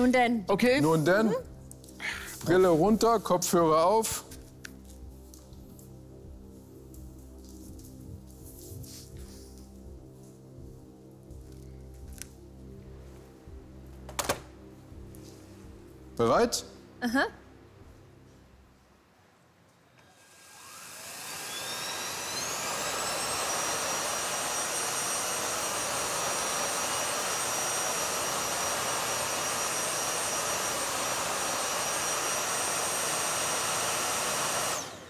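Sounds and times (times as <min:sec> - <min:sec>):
vacuum cleaner whining: 0:20.0 - 0:35.0.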